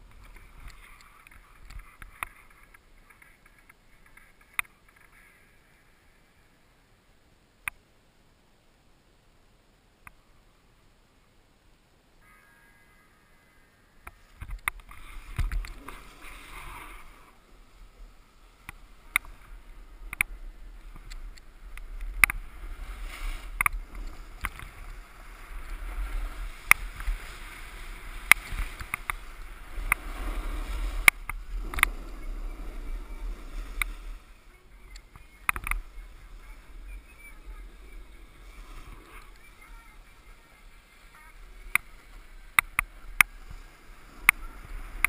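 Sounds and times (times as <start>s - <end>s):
wind rumbling on microphone: 14.0s - 45.0s
snowboard scraping over snow: 15.0s - 45.0s.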